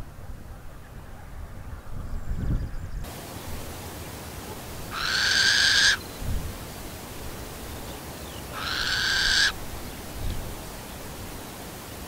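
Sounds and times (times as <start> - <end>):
owl rasping calls: 4.5 - 6.1, 8.2 - 9.8.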